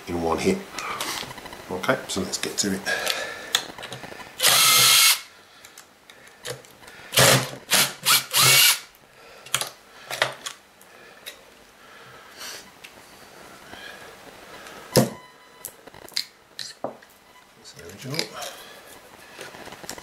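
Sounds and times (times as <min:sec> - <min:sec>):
cordless drill running: 0:04.4 - 0:05.3, 0:07.2 - 0:08.9
parts being handled clicks: 0:09.4 - 0:10.6.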